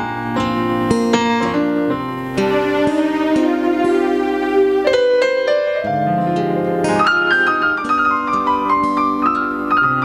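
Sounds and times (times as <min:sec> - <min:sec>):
electronic keyboard piano melody: 0:00.0 - 0:10.0.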